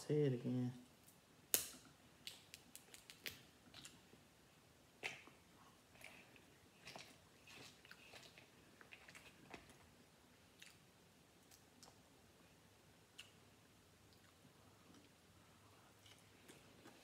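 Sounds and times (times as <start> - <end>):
quiet chewing: 2.8 - 4.1, 5.0 - 12.0, 13.1 - 17.0.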